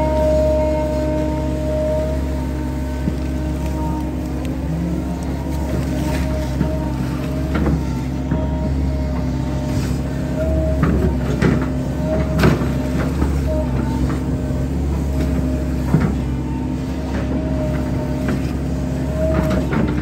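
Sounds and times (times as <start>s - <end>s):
diesel engine drone: 0.0s - 20.0s
hydraulic whine: 0.0s - 20.0s.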